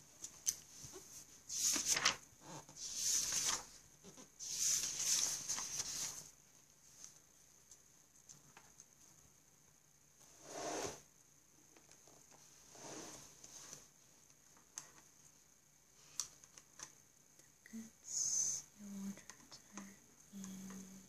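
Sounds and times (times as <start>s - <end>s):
paper pages rustling: 0.8s - 8.9s.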